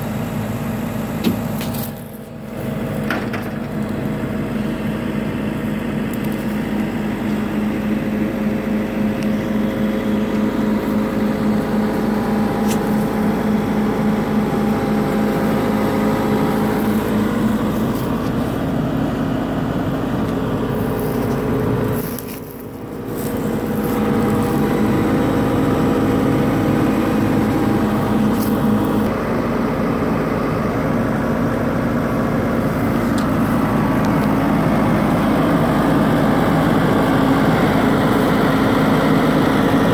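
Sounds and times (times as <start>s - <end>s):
excavator diesel engine idling: 0.0s - 39.9s.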